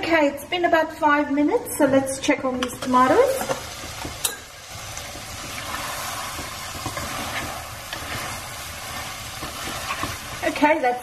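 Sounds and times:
curry sizzling in a pot: 2.6s - 11.0s.

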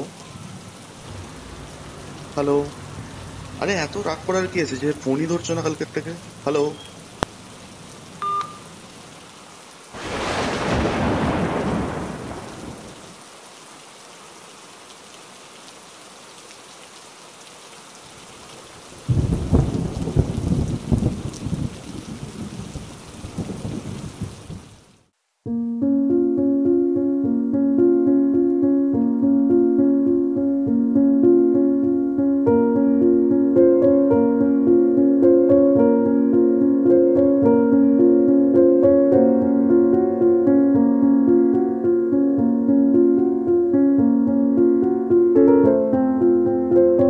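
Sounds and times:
steady rain: 0.0s - 25.4s
piano music: 3.5s - 6.8s, 25.5s - 47.0s
short beep: 8.2s - 8.6s
thunder rolling: 10.0s - 13.0s, 19.1s - 24.6s.

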